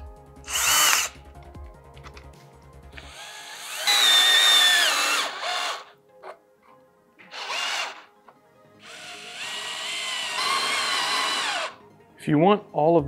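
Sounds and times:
cordless drill motor whining: 0:00.5 - 0:01.2, 0:03.0 - 0:05.9, 0:07.3 - 0:08.1, 0:08.8 - 0:11.8
drill click: 0:00.5 - 0:01.2, 0:03.0 - 0:05.9, 0:07.3 - 0:08.0, 0:08.8 - 0:11.8.

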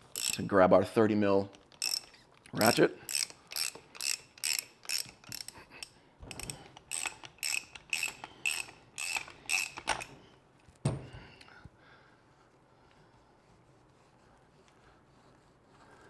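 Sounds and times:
socket ratchet clicking: 0:00.0 - 0:00.5, 0:01.5 - 0:10.2
thump: 0:10.8 - 0:11.2.

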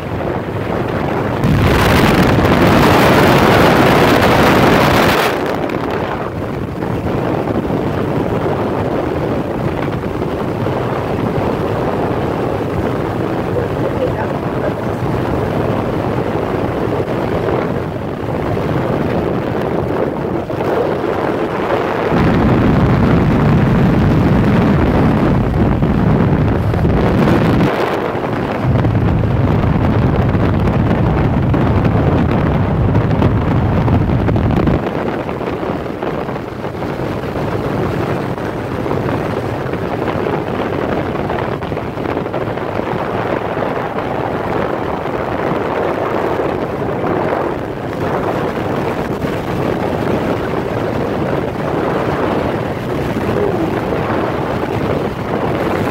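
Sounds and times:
motorcycle engine: 0:00.0 - 0:08.2, 0:09.0 - 0:34.5, 0:51.7 - 0:55.9
road noise: 0:00.0 - 0:55.9
wind buffeting microphone: 0:00.0 - 0:55.9.

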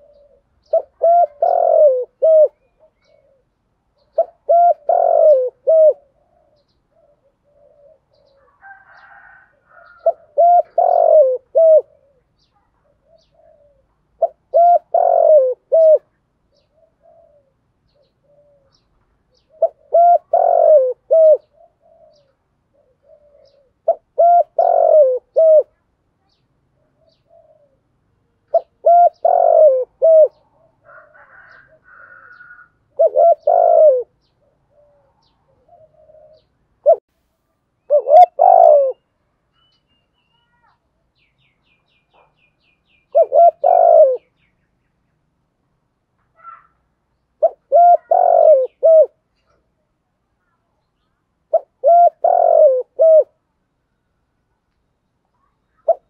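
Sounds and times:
dove cooing: 0:00.0 - 0:25.8, 0:26.8 - 0:37.1, 0:37.8 - 0:39.1, 0:43.0 - 0:44.4, 0:47.4 - 0:49.6, 0:51.5 - 0:53.4, 0:55.8 - 0:56.0.

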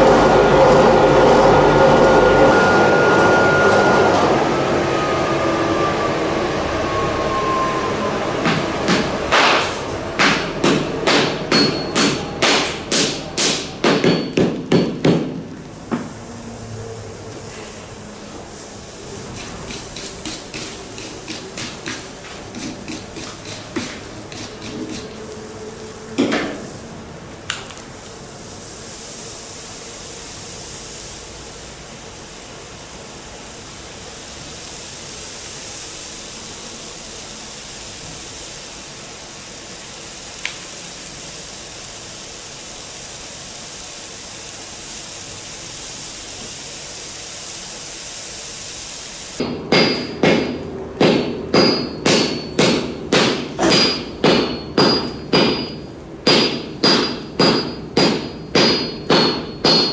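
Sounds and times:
sledgehammer striking metal on anvil: 0:08.9 - 0:15.4, 0:49.4 - 0:59.9
forge fire hissing: 0:15.6 - 0:49.4.

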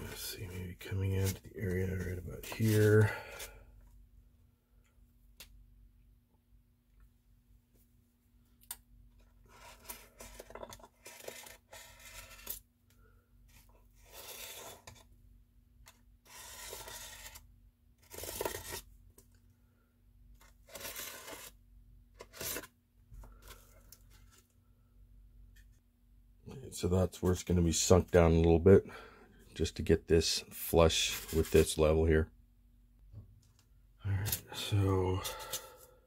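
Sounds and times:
scratchy strokes on styrofoam: 0:13.5 - 0:14.8, 0:16.2 - 0:17.4, 0:20.7 - 0:21.5.

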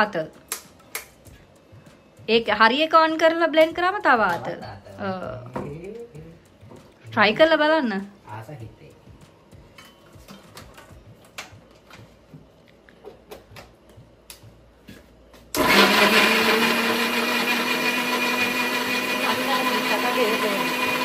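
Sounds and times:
mixer grinder running: 0:15.6 - 0:21.0.

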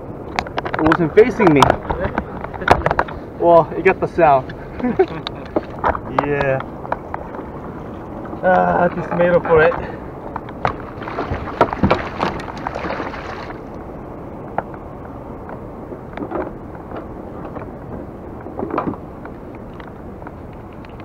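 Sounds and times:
water splashing against kayak: 0:04.5 - 0:13.8
gear knocking on plastic hull: 0:09.0 - 0:13.2.

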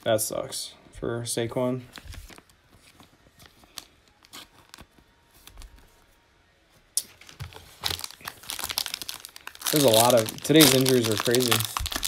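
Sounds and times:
trading cards rustling: 0:01.9 - 0:06.0, 0:07.0 - 0:12.0
foil wrapper crackle: 0:07.8 - 0:12.0.

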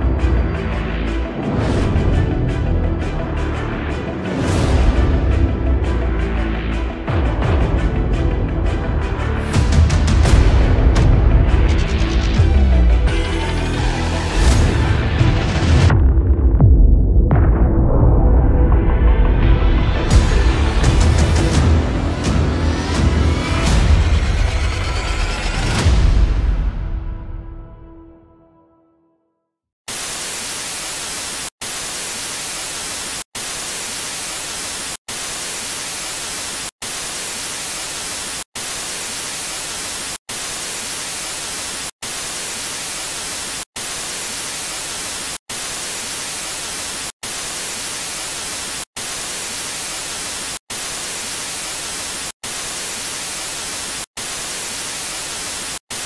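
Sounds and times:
television static hiss: 0:29.9 - 0:56.0.

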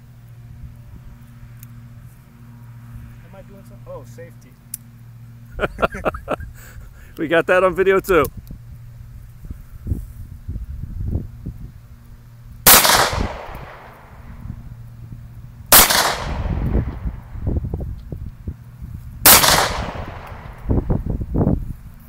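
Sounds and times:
pistol shots with echo: 0:12.7 - 0:14.3, 0:15.7 - 0:17.3, 0:19.3 - 0:20.7.

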